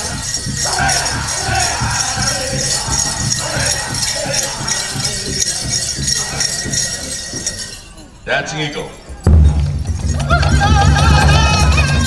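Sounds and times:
group singing: 0.0 - 7.7, 10.1 - 12.0
steady drumbeat: 0.0 - 7.9, 9.2 - 12.0
bells jingling: 0.0 - 12.0.

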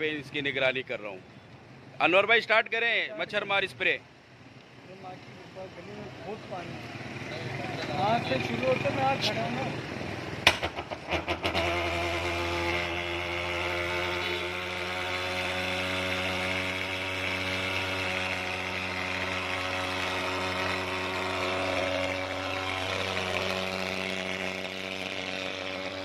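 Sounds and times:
fogging machine droning: 12.9 - 26.0.

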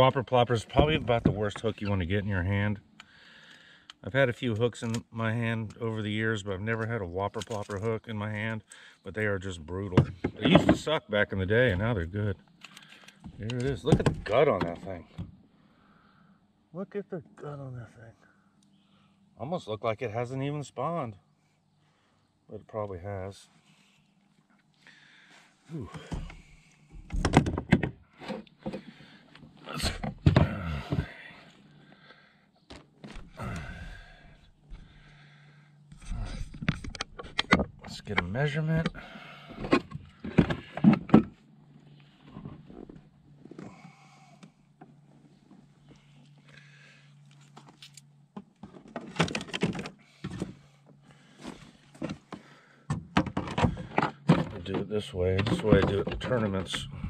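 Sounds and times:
low vocal sounds: 33.3 - 34.4.

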